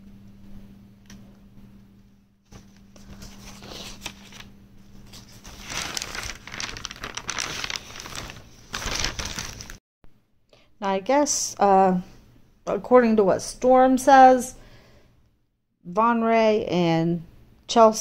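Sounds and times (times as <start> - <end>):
paper rustling and crinkling: 2.5 - 9.8.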